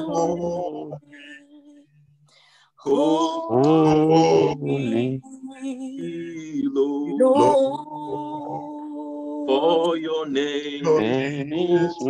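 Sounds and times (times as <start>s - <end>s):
man singing worship chorus: 0.0s - 1.7s, 2.8s - 5.3s, 6.0s - 8.8s, 9.5s - 12.0s.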